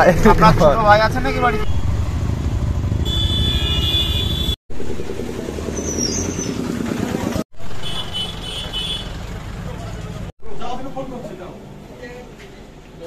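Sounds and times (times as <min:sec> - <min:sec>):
motorcycle engines running: 0:00.0 - 0:10.3
street traffic: 0:00.0 - 0:13.0.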